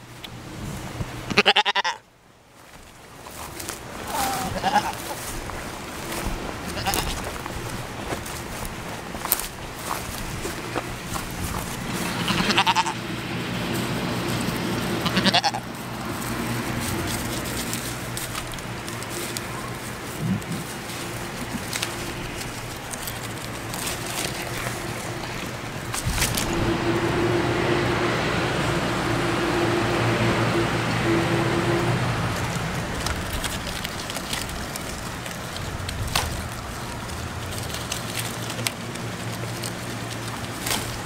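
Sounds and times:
goat bleating: 0:01.3 - 0:02.0, 0:04.0 - 0:05.2, 0:06.6 - 0:07.3, 0:12.0 - 0:13.0, 0:14.8 - 0:15.8.

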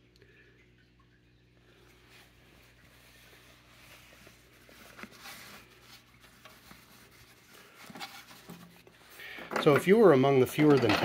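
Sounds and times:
rubbing and rustling of parts: 0:02.6 - 0:11.0.

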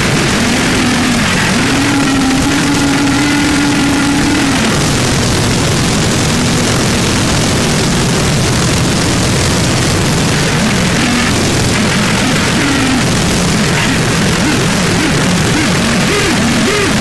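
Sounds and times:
low wavering drone: 0:00.0 - 0:05.5
harsh distorted noise music: 0:00.0 - 0:17.0
steady low hum: 0:00.0 - 0:17.0.

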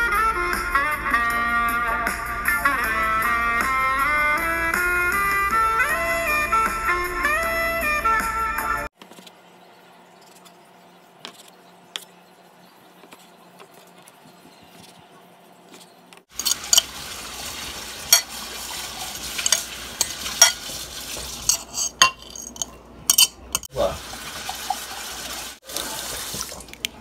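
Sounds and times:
stirring vegetables in glass bowl: 0:16.3 - 0:16.9, 0:19.4 - 0:20.6, 0:21.2 - 0:23.7
fork clinking against glass: 0:16.4 - 0:16.9, 0:19.4 - 0:20.6, 0:21.4 - 0:23.7.

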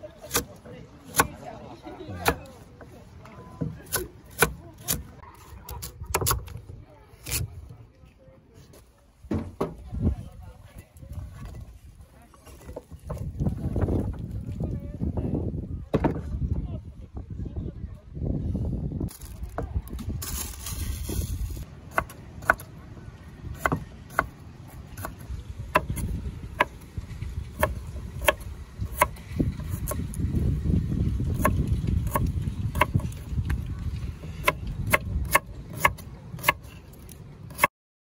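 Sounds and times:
knife chopping on wooden board: 0:23.6 - 0:24.3.

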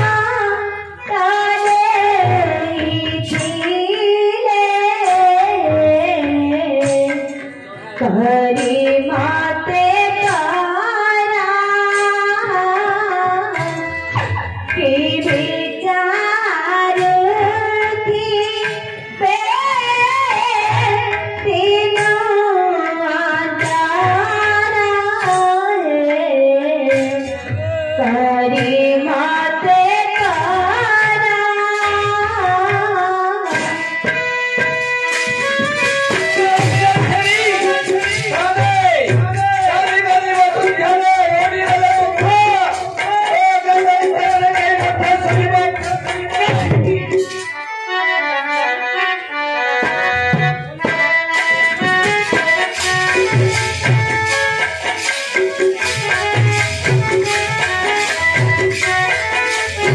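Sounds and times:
drum strokes: 0:32.6 - 0:47.6, 0:49.8 - 0:59.9.

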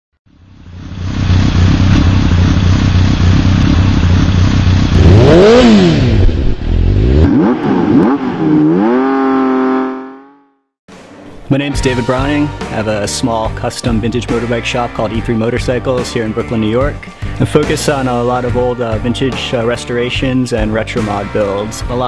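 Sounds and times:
motorcycle engine revving: 0:00.3 - 0:10.7.

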